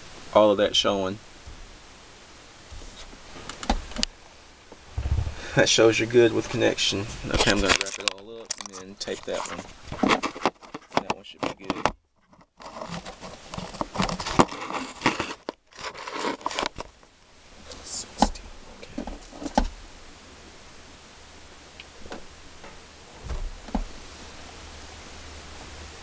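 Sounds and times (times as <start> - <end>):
steady hiss: 0.0 - 26.0
wires rustling and crinkling: 2.6 - 19.8.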